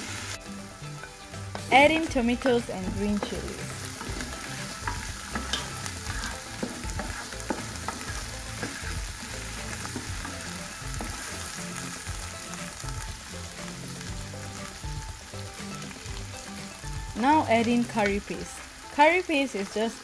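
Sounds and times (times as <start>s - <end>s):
vegetables sizzling in oil: 0.0s - 20.0s
spatula scraping and tapping pan: 1.0s - 9.1s.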